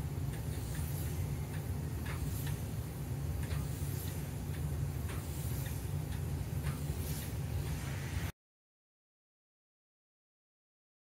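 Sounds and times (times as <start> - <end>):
faint irregular ticks: 0.0 - 7.8.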